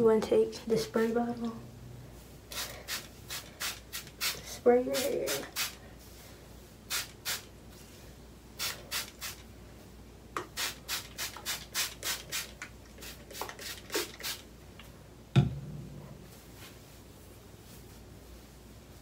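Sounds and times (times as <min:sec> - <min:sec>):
spray bottle squirting: 0:10.4 - 0:14.4.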